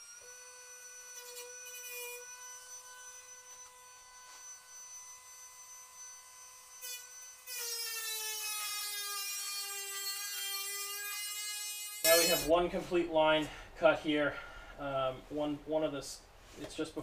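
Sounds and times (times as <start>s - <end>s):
rotary tool whining: 0.0s - 12.5s
cutting wheel biting sheet metal: 0.8s - 3.3s, 6.8s - 12.5s.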